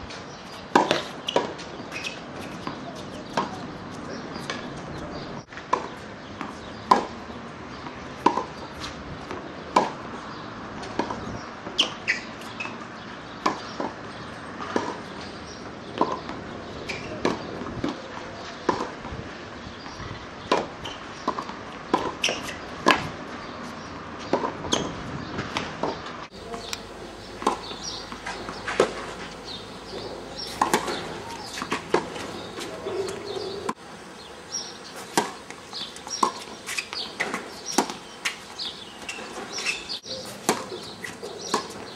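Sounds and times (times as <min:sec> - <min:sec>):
racquet striking tennis ball: 0:00.7 - 0:03.6, 0:25.6 - 0:33.8, 0:34.5 - 0:41.9
tennis ball bouncing: 0:00.7 - 0:03.6, 0:25.4 - 0:41.9.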